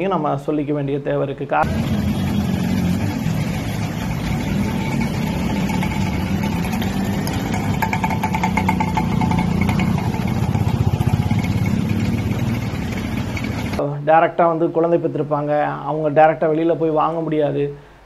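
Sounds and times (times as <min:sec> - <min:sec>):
engine throbbing: 0:01.6 - 0:13.8
small engines in traffic: 0:01.6 - 0:13.8.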